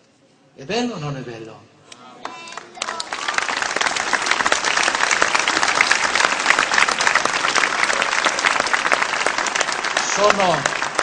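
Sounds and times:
crowd applauding: 2.2s - 11.0s.

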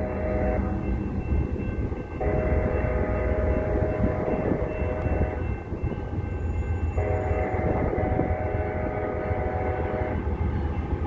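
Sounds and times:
locomotive air horn blast: 0.0s - 0.8s, 2.2s - 3.9s, 7.0s - 10.2s
low rumble of train: 0.0s - 11.0s.

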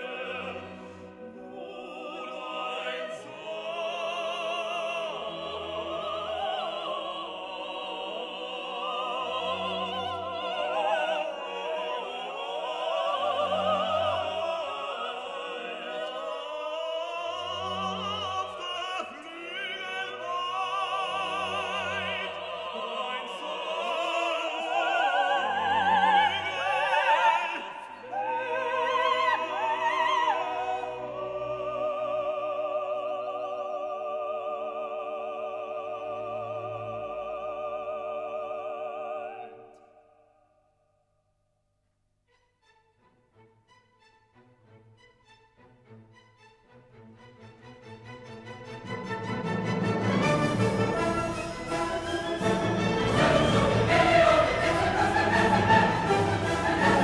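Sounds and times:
operatic singing with vibrato: 0.0s - 40.4s, 46.9s - 57.0s
orchestra playing: 42.3s - 57.0s.

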